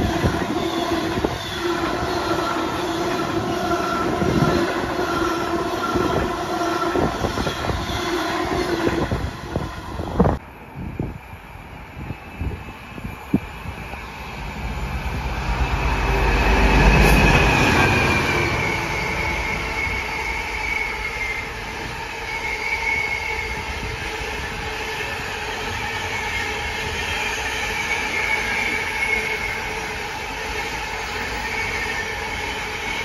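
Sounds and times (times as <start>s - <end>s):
high wavering wheel squeal: 10.8s - 33.0s.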